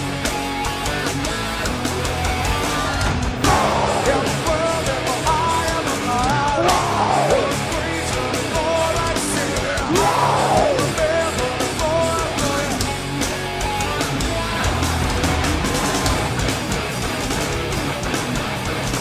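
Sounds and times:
heavy metal band playing live: 0.0 - 19.0
swooping sound: 3.4 - 4.7.

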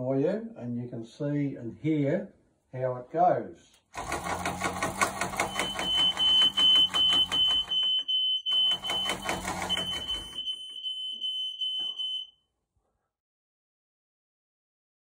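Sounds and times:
high-pitched alarm beeping: 5.4 - 12.3.

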